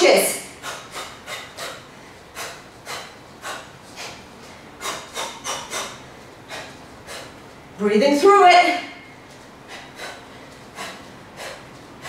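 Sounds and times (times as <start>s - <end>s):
hissing exhalations through teeth: 0.5s - 4.2s, 4.8s - 7.4s, 9.7s - 11.7s.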